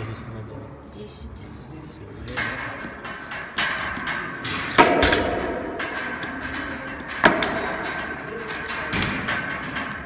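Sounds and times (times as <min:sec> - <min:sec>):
weight plates clanking on barbell: 0:02.4 - 0:10.0.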